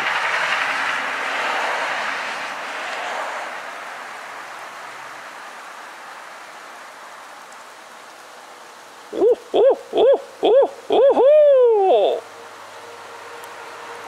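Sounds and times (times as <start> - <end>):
owl hoots: 9.1 - 12.2.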